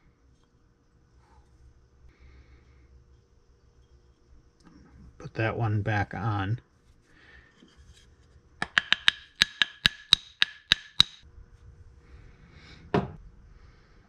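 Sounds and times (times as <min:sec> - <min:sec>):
wooden stick rapping plaster box: 0:08.6 - 0:11.2.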